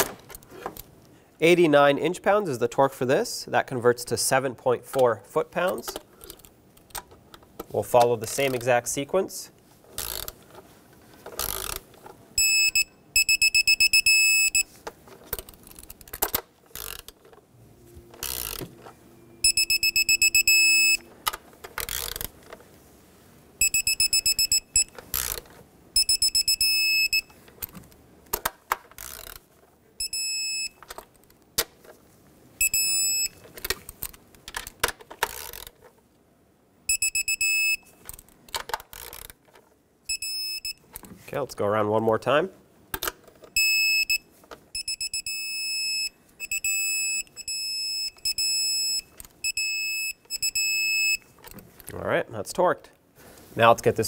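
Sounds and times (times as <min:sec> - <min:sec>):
ratchet clicks: 0:10.0 - 0:10.4, 0:11.4 - 0:11.8, 0:15.4 - 0:17.2, 0:21.8 - 0:22.3, 0:29.0 - 0:29.4, 0:38.9 - 0:39.4
torque wrench beeping: 0:12.4 - 0:14.7, 0:18.1 - 0:21.1, 0:23.6 - 0:25.4, 0:26.0 - 0:27.4, 0:32.6 - 0:33.4, 0:36.9 - 0:37.8, 0:40.1 - 0:40.8, 0:43.6 - 0:44.2, 0:44.8 - 0:51.2.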